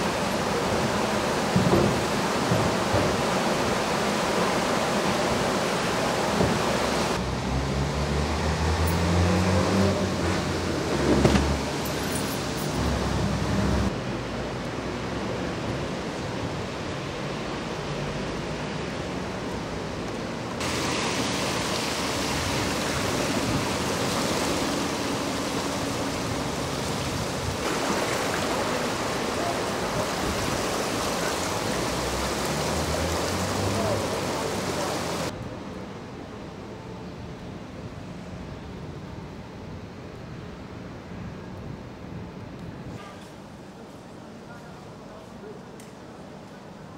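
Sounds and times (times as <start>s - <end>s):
floodwater rushing: 0.0s - 35.4s.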